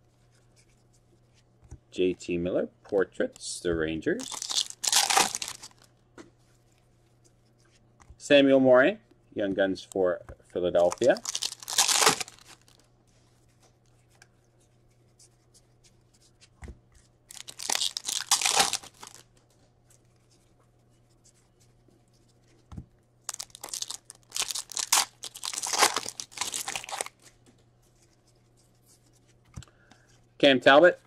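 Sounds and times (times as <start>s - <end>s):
card wrappers tearing and crinkling: 4.2s - 5.9s, 10.8s - 12.8s, 17.3s - 19.3s, 23.3s - 27.3s.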